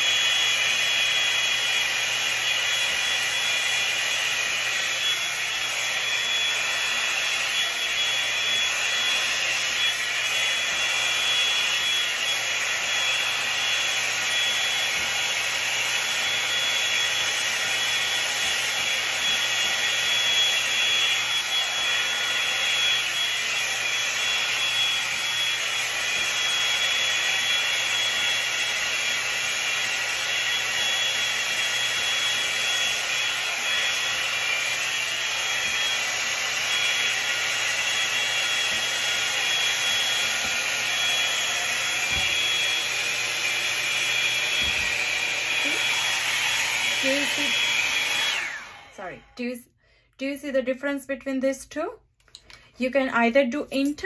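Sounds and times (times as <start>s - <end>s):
hot-air brush blowing with whine: 0.0s - 49.4s.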